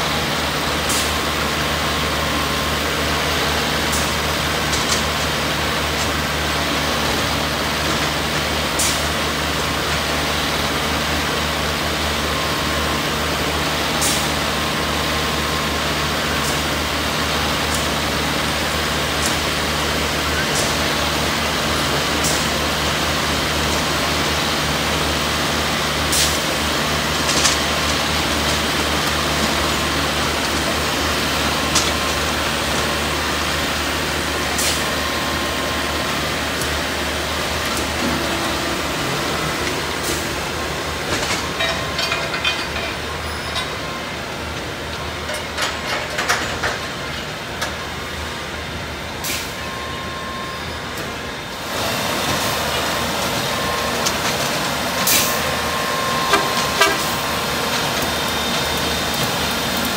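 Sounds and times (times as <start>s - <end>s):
diesel engine running: 0.0s - 59.9s
metallic clanks and clicks: 41.1s - 43.7s.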